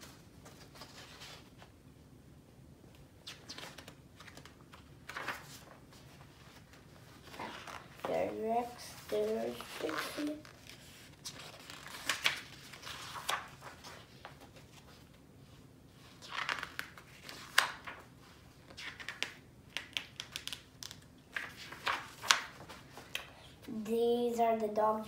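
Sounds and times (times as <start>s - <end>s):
book pages turning: 0.1s - 1.7s, 3.2s - 15.2s, 16.0s - 23.3s.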